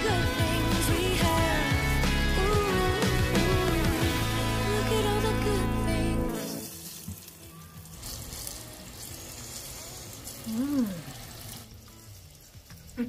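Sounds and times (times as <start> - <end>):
chicken frying in oil: 6.4 - 13.0
person humming: 10.4 - 11.3.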